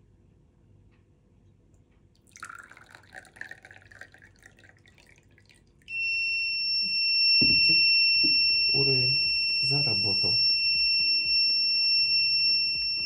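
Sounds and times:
water pouring into a glass: 2.2 - 5.9
high-pitched buzzer tone: 5.9 - 13.0.

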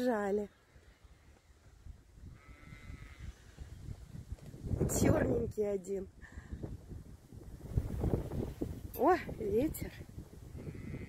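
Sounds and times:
wind rumble on microphone: 0.8 - 11.0
sheep bleating faintly: 2.3 - 3.5.

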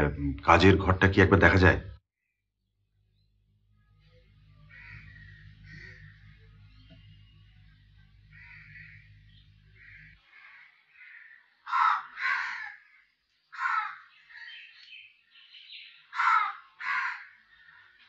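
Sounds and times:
crows cawing: 4.6 - 6.9, 8.2 - 14.8, 15.7 - 18.0.

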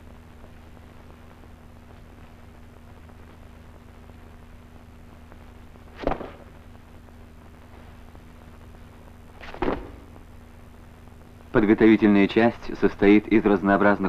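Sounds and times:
film soundtrack hum and hiss: 0.0 - 14.0.

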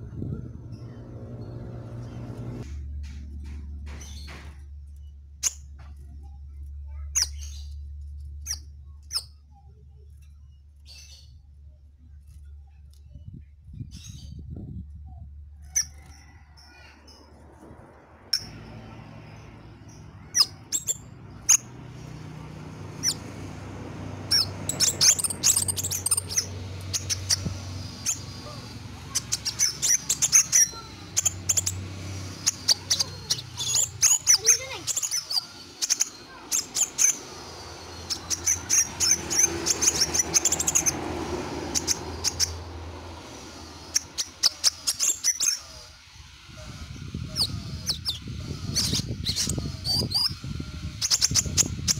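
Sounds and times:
sunbird chirping: 0.0 - 2.6, 18.3 - 51.9.

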